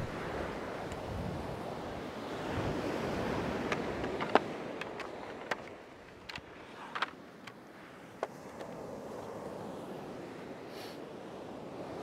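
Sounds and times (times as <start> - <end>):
tripod clicks and knocks: 3.6 - 7.6, 8.2 - 8.8.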